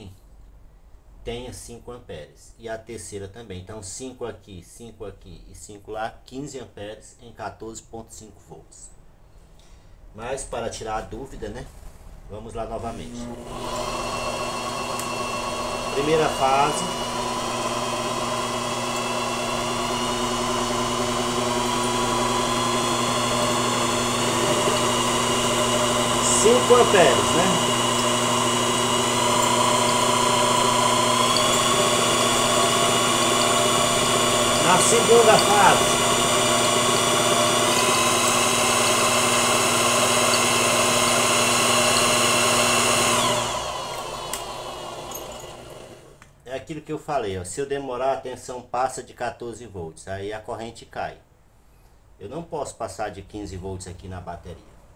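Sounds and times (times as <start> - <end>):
electric motor whining: 12.8 - 46.2.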